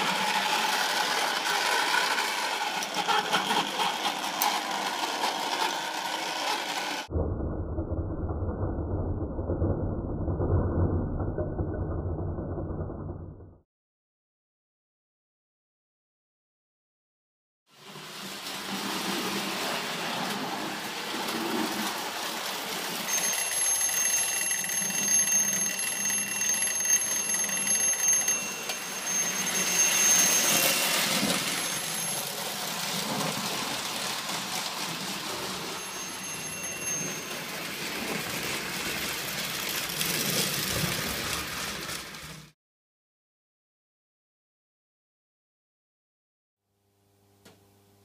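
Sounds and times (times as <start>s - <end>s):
model train clattering on track: 0.0s - 7.0s, 23.1s - 42.4s.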